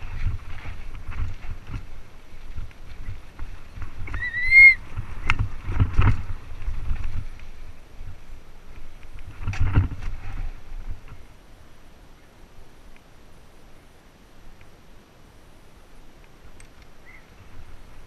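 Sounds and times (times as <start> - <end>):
bike tyres rumbling on rocks: 0.0 - 11.2.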